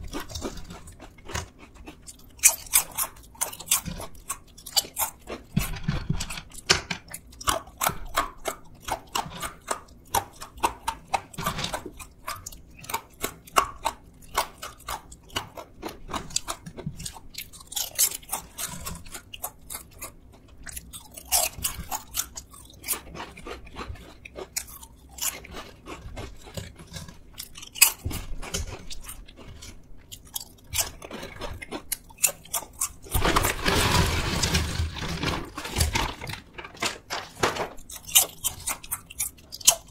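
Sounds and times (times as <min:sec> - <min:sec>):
crunching and chewing chips: 0:00.0 - 0:39.9
bag rustling: 0:33.2 - 0:36.7
chips poured onto wooden tray: 0:33.2 - 0:37.3.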